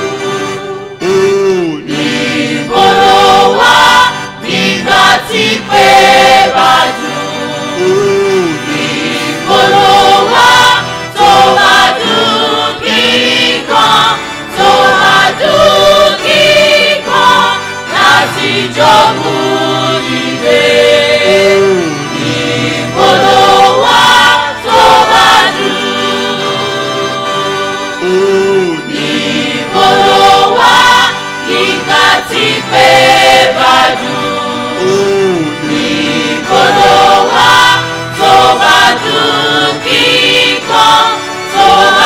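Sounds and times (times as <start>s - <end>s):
choir singing a hymn: 0.0s - 1.2s, 1.8s - 42.0s.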